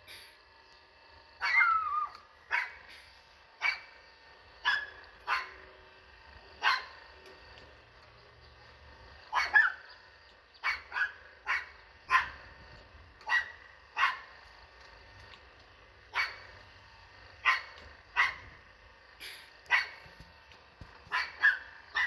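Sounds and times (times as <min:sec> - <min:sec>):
dog barking: 0:01.4 - 0:02.8, 0:03.6 - 0:03.9, 0:04.6 - 0:05.6, 0:06.6 - 0:07.0, 0:09.3 - 0:09.9, 0:10.6 - 0:12.4, 0:13.2 - 0:14.3, 0:16.1 - 0:16.4, 0:17.4 - 0:18.5, 0:19.7 - 0:20.0, 0:21.1 - 0:22.0.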